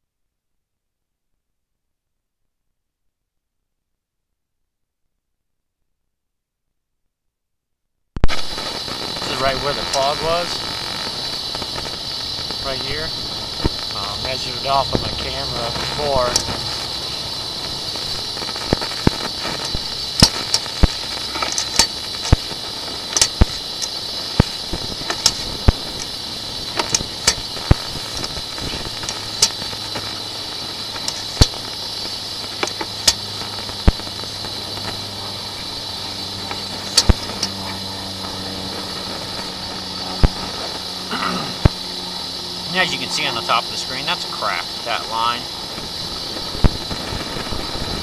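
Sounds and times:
sharp clicks and pops: 8.2s - 40.9s, 42.6s - 48.0s
electronic hiss: 8.2s - 48.0s.

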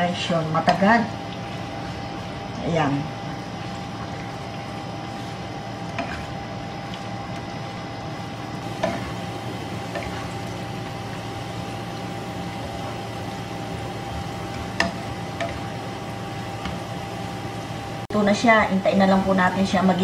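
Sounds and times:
onions sizzling in oil: 8.6s - 18.1s.

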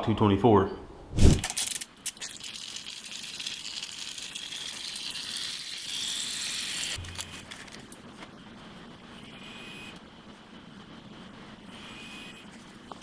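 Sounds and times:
steady hiss: 4.3s - 13.0s.

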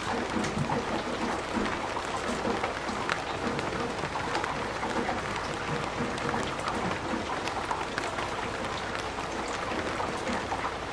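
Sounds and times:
heavy rain on plastic roof: 0.0s - 10.9s.

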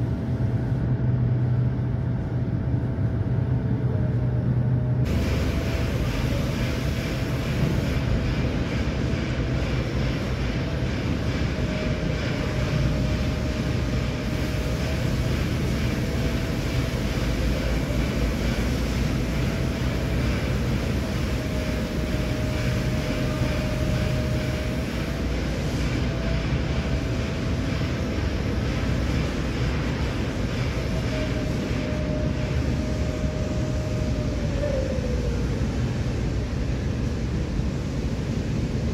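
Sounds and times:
low droning hum: 0.0s - 38.9s.

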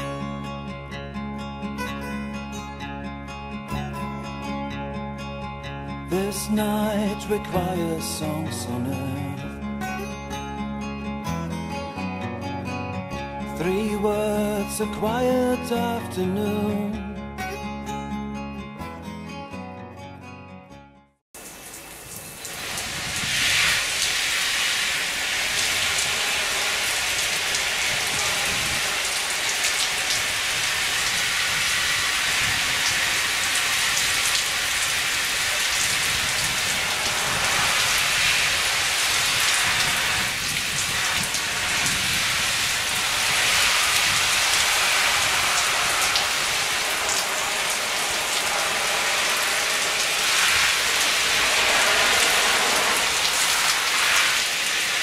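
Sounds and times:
sprinkler water spraying: 21.4s - 55.0s
water pattering on poncho: 21.4s - 55.0s.

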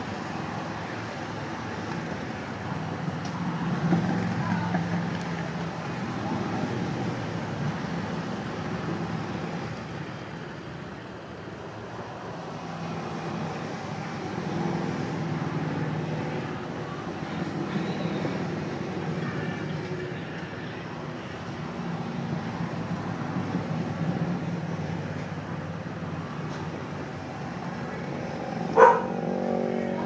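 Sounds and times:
motorcycles riding past: 27.9s - 30.0s.

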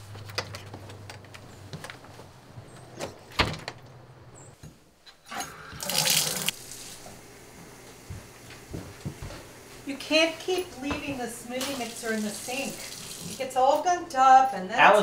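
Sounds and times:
shower water spraying: 5.8s - 7.1s, 11.5s - 13.4s.

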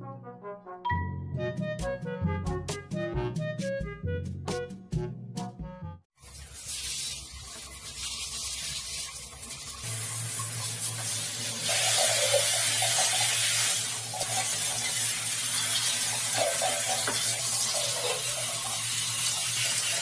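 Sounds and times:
water spraying from shower head: 6.2s - 20.0s.

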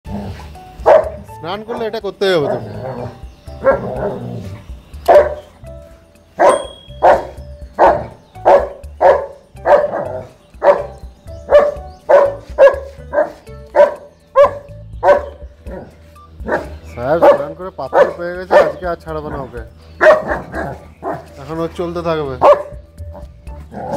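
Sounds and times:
dog barking: 0.8s - 2.7s, 3.6s - 4.2s, 5.1s - 5.5s, 6.4s - 21.3s, 22.4s - 23.3s.

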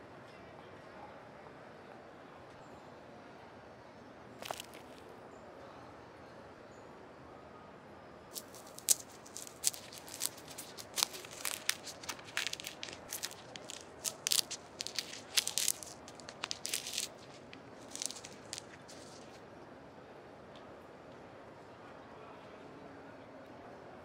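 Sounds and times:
orange peel crackling and tearing: 4.4s - 5.0s, 8.3s - 19.4s.

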